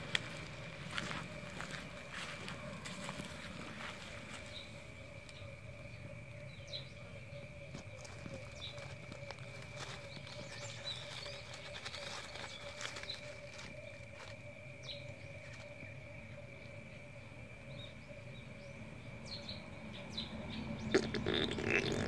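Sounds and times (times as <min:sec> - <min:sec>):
rustling in dry leaves: 0:00.0 - 0:04.7, 0:07.8 - 0:15.8, 0:20.9 - 0:22.0
faint steady drone: 0:00.0 - 0:22.0.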